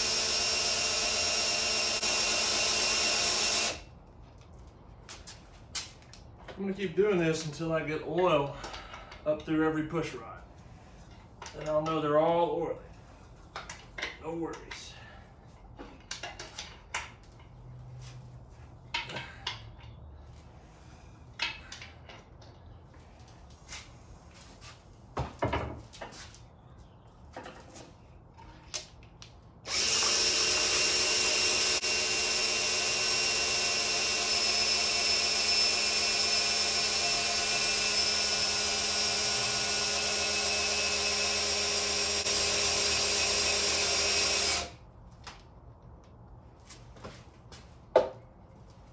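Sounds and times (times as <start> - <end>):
cordless drill whining: 0.0 - 3.9, 29.7 - 44.8.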